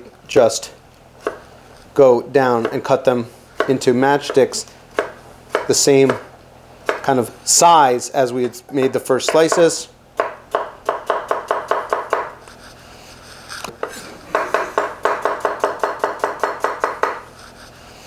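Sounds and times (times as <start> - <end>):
knife chopping on wooden board: 1.2 - 1.4, 3.6 - 7.1, 8.8 - 12.4, 13.7 - 17.4.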